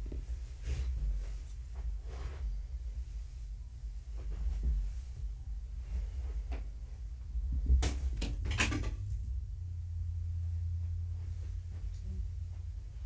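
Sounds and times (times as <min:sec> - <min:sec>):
steady low rumble: 0:00.0 - 0:13.0
clatter of knocks: 0:07.6 - 0:09.1.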